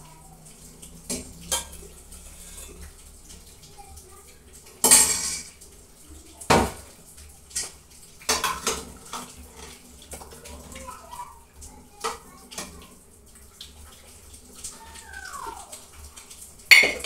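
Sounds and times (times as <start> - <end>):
spoon clanking on metal pot: 16.7 - 17.0.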